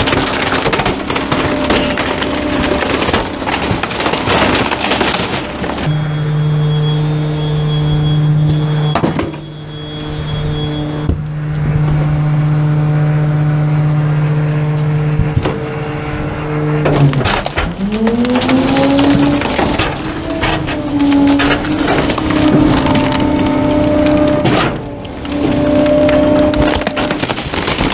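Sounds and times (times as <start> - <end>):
clattering: 0.0 - 5.9, 16.8 - 27.9
garbage truck engine humming: 0.0 - 27.9.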